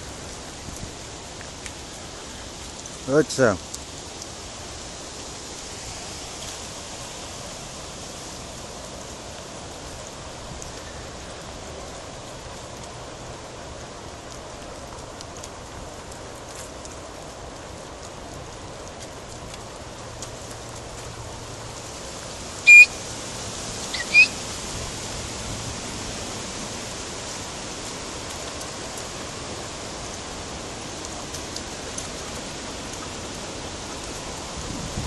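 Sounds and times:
outdoor noise hiss: 0.0s - 35.0s
sharp high-pitched squeaks: 22.7s - 22.9s, 24.0s - 24.3s.

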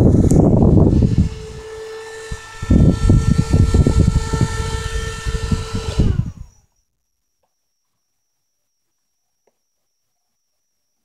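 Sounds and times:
electric fan whining: 0.0s - 6.8s.

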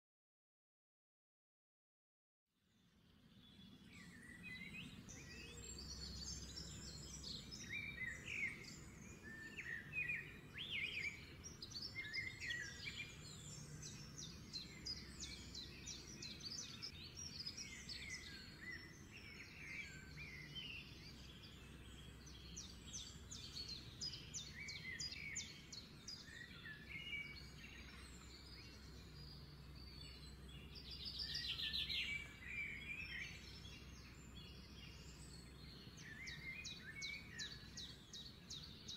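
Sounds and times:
small birds chirping: 2.8s - 38.9s.

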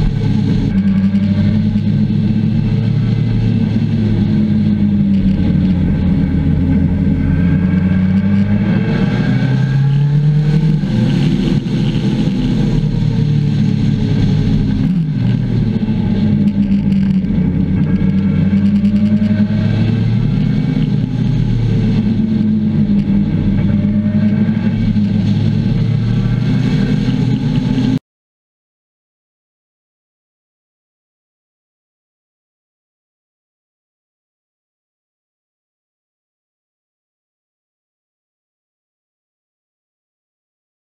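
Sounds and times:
motorcycle engine accelerating: 0.0s - 28.0s.

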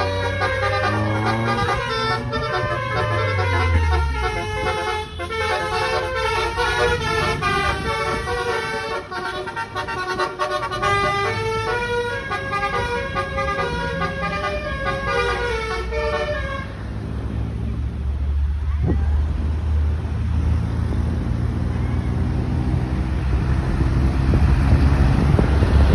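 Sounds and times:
multi-trumpet air horn tune: 0.0s - 16.7s
engine and traffic rumble: 0.0s - 25.9s.

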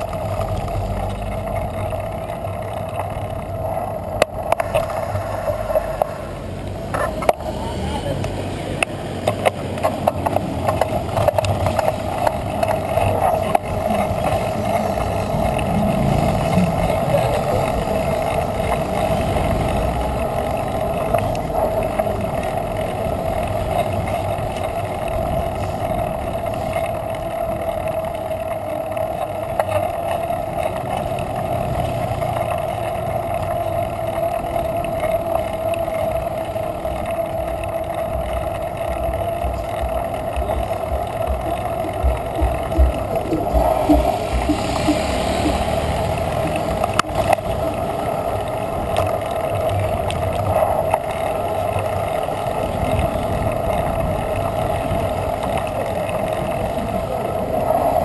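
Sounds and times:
mid-pitched hum: 0.0s - 58.0s
wind rushing: 38.3s - 47.8s.

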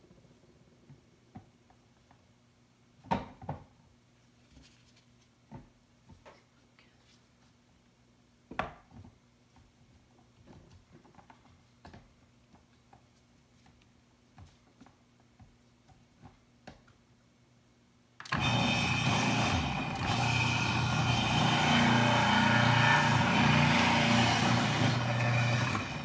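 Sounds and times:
food processor motor running: 18.3s - 26.0s.

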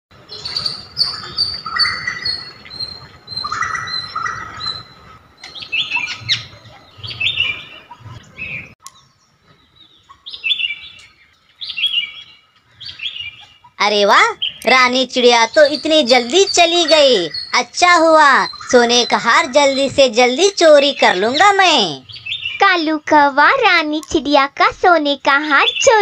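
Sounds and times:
birds chirping and calling: 0.2s - 24.2s, 25.2s - 26.0s.

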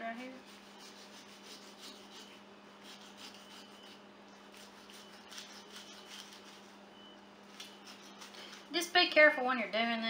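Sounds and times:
knife scraping through fish: 0.4s - 6.8s, 7.6s - 8.7s.

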